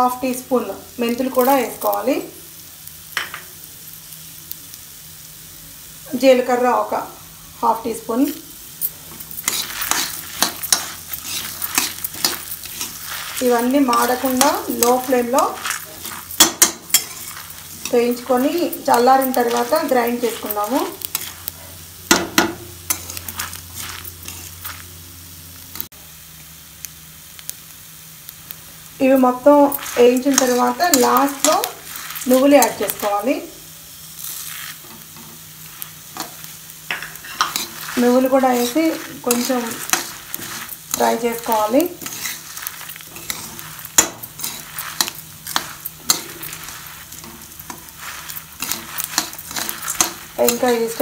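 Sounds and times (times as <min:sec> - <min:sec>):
light sizzle: 0:00.0 - 0:51.0
metal spatula scraping metal pan: 0:08.8 - 0:21.5, 0:22.1 - 0:24.8, 0:29.5 - 0:33.2, 0:36.1 - 0:51.0
seeds rattling: 0:08.8 - 0:21.6, 0:22.9 - 0:24.9, 0:29.2 - 0:33.3, 0:34.2 - 0:36.5, 0:37.2 - 0:51.0.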